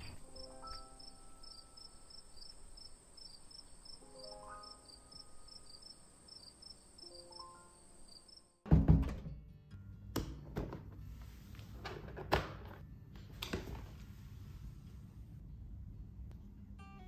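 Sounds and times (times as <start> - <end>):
soft music notes: 0.0 - 2.8, 4.0 - 5.8, 12.8 - 17.0
crickets chirping: 0.0 - 8.6.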